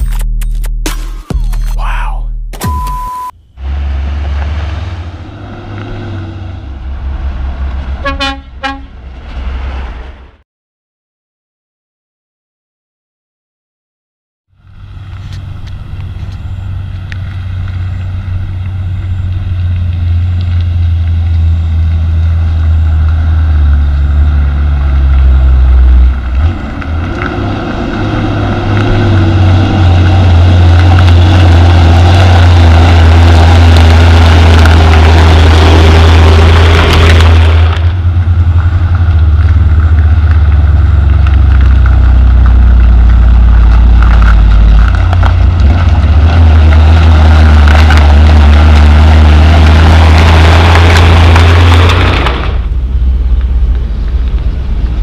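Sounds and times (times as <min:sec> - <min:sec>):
rushing noise: 0:03.6 - 0:10.4, 0:14.6 - 0:55.0
diesel truck engine running: 0:14.6 - 0:55.0.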